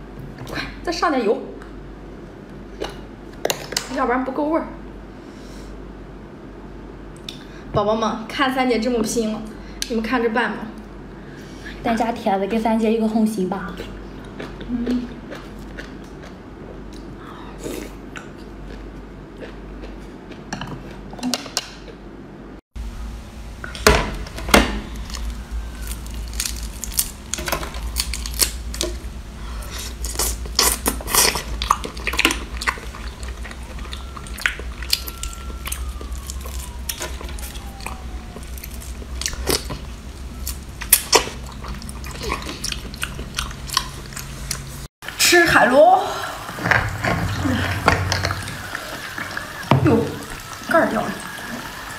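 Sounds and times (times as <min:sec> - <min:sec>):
chewing and lip smacks: 0:13.6 - 0:21.1, 0:29.7 - 0:44.8.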